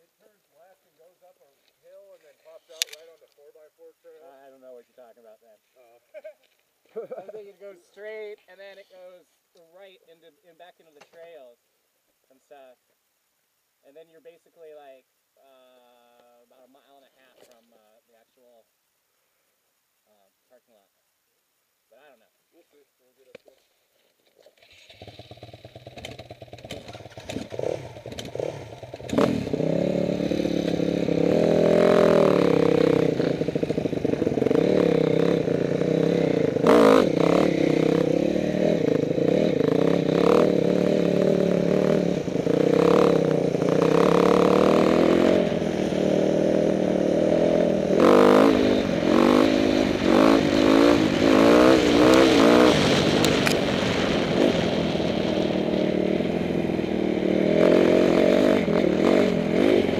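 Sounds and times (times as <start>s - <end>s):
dirt bike engine revving: 24.6s - 59.9s.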